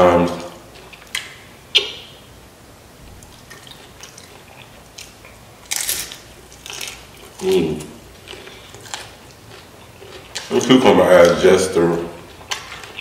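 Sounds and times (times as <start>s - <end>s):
soft chewing: 0.2s - 1.9s, 3.1s - 11.4s, 12.1s - 13.0s
chips crunching: 3.2s - 13.0s.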